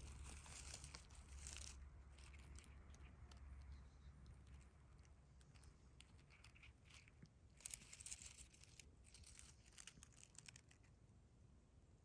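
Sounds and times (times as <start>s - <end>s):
rustling in dry leaves: 0.0s - 2.3s.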